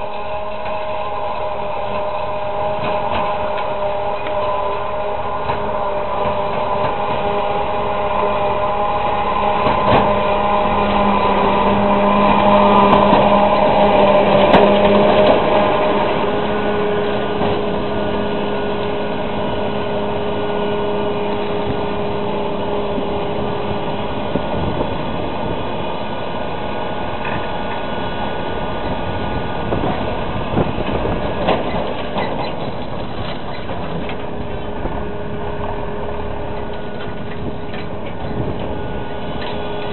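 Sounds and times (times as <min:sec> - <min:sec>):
tractor engines under load: 0:00.0 - 0:39.9.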